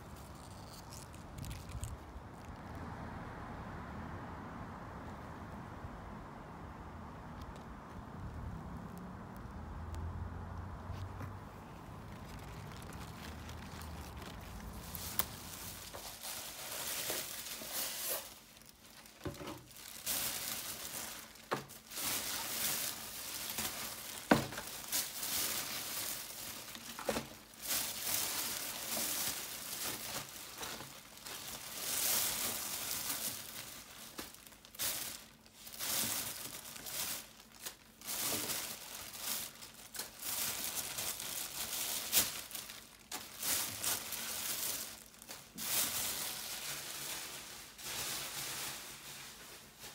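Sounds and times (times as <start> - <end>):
salad leaves rustling: 0.0 - 2.8, 10.8 - 49.9.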